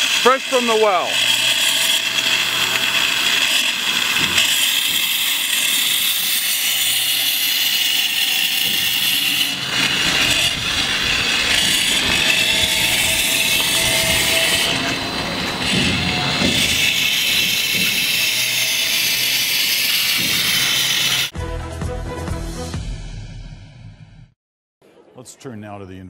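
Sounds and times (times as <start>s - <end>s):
pumpjack mechanical rumble: 0.0s - 19.3s.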